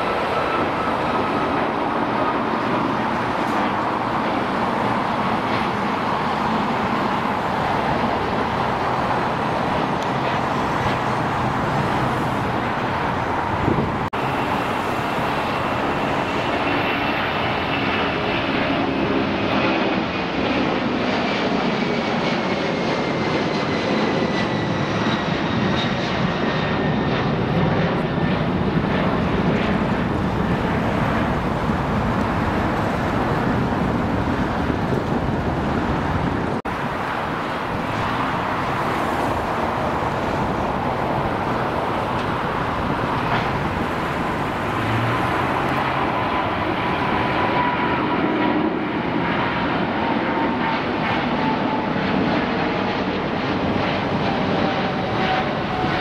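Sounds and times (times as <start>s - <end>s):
jet engine roar: 0.0s - 56.0s
jet engine whine falling in pitch: 0.0s - 56.0s.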